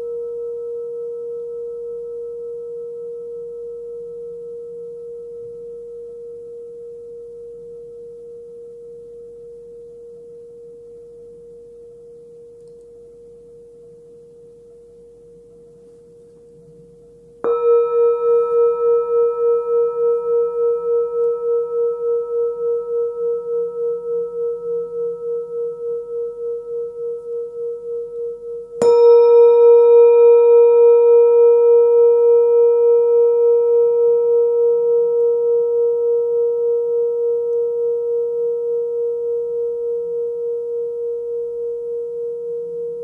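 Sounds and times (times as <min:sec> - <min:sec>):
singing bowl ringing: 0:00.0 - 0:15.7, 0:17.4 - 0:43.0
singing bowl struck: 0:17.4 - 0:43.0.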